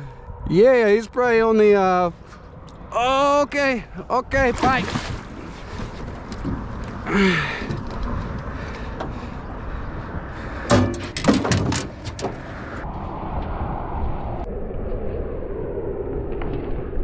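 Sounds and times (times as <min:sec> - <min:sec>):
wind: 0:00.0 - 0:17.0
water: 0:03.9 - 0:12.6.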